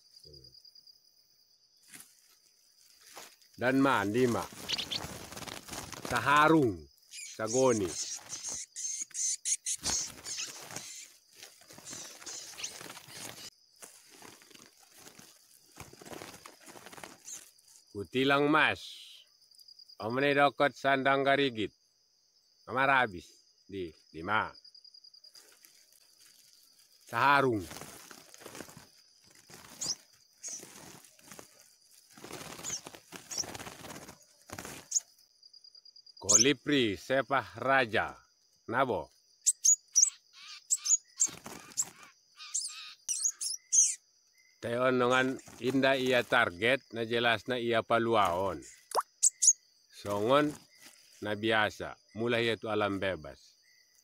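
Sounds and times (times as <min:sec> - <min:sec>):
high insect trill: 0:00.0 - 0:54.0
birds rustling in a sack: 0:01.8 - 0:09.0, 0:09.7 - 0:17.9, 0:25.3 - 0:35.3, 0:41.1 - 0:42.2, 0:45.1 - 0:46.5, 0:50.0 - 0:51.3
short high chirps: 0:48.9 - 0:49.6.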